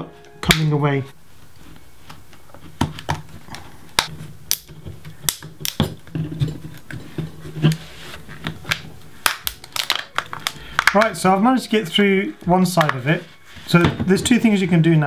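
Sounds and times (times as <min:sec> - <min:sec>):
plastic case snapping apart: 0:04.0 - 0:06.1, 0:08.7 - 0:11.1.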